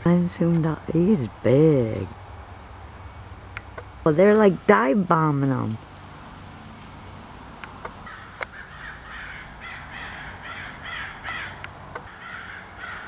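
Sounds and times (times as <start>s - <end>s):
sharp clicks: 3.5s - 3.9s, 7.6s - 8.5s, 11.2s - 12.1s
crows cawing harshly: 8.0s - 13.0s.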